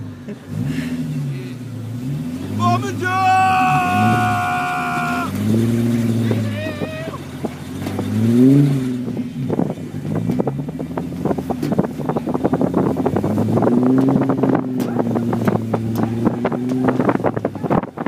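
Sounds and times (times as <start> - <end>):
vehicle engine revving: 0.0 - 18.0
wind buffeting microphone: 9.1 - 18.0.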